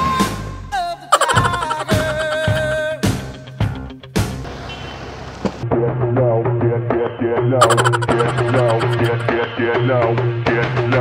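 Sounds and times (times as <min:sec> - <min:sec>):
background music with steady beat: 0:00.1 - 0:04.3.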